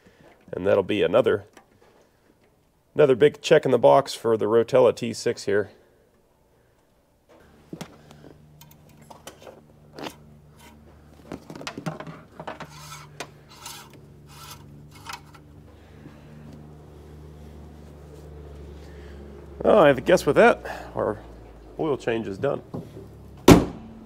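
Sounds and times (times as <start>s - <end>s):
low steady hum: 0.0s - 24.0s
plastic parts clicking and knocking: 11.2s - 13.3s.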